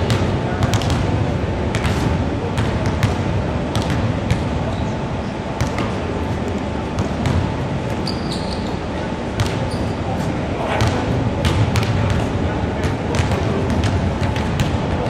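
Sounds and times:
basketballs bouncing on wooden floor: 0.0s - 4.5s, 9.4s - 9.8s, 10.8s - 15.0s
low din of sports hall: 0.0s - 15.0s.

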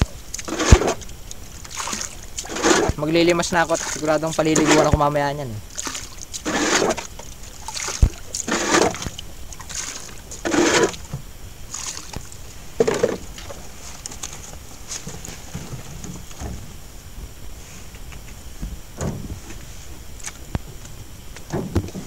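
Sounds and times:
water splashing from bailing: 0.0s - 13.6s.

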